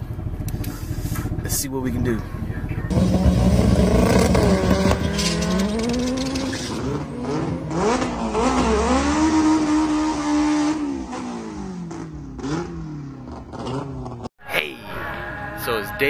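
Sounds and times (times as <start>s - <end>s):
car engine accelerating through gears: 2.9s - 14.3s.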